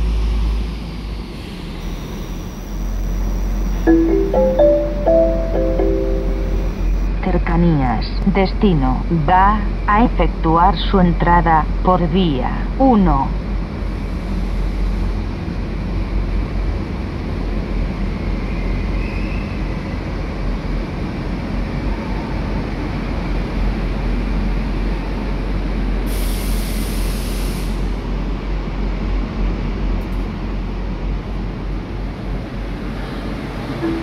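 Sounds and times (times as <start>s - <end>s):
train rumbling to a stop: 0.0s - 7.4s, 9.0s - 34.0s
loud hiss: 26.1s - 27.9s.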